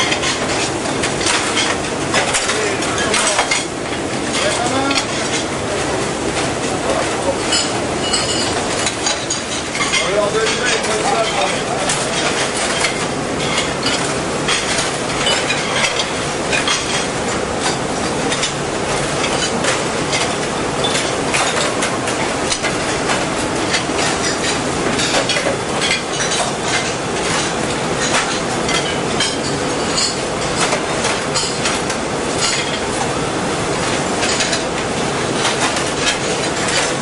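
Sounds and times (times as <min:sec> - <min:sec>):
conveyor dishwasher rattling: 0:00.0 - 0:37.0
china plates clinking: 0:07.5 - 0:17.0.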